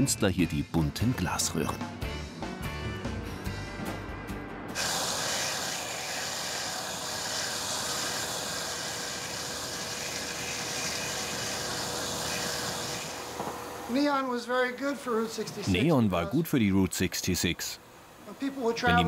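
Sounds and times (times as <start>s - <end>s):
gas burner flames hissing: 4.7s - 19.0s.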